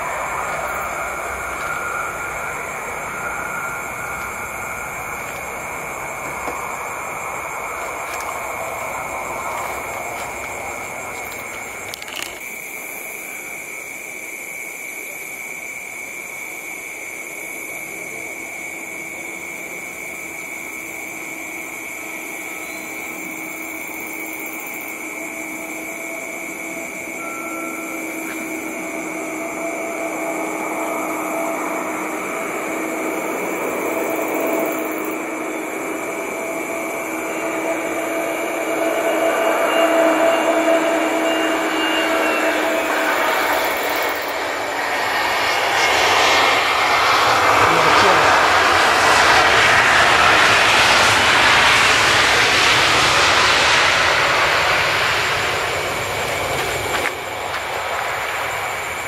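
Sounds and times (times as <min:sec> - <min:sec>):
steady high tone: 0:00.0 - 0:12.4, 0:25.0 - 0:51.6
jet airliner engine noise: 0:00.0 - 0:59.0.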